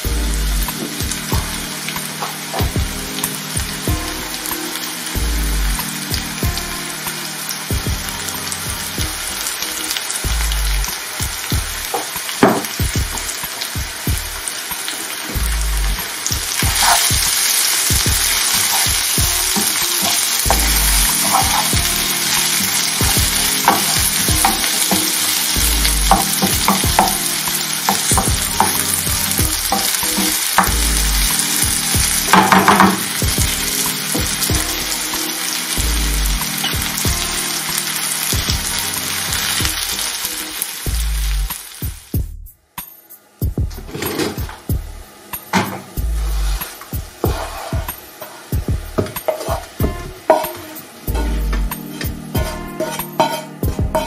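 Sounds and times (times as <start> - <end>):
vegetables sizzling in a pan: 0.0 - 42.2, 43.8 - 54.0
wooden spatula scraping a pan: 16.7 - 17.4, 46.2 - 50.5, 51.8 - 54.0.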